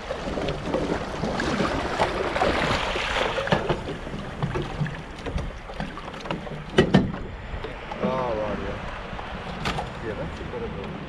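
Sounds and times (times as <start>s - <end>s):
water sloshing around legs: 0.0s - 8.2s.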